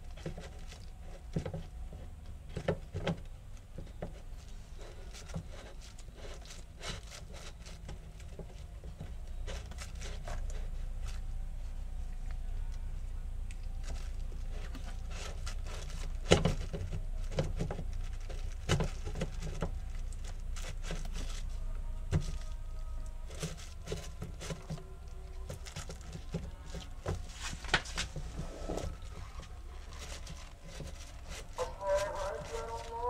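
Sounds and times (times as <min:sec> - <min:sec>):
plastic parts clicking and knocking: 0:13.6 - 0:21.5.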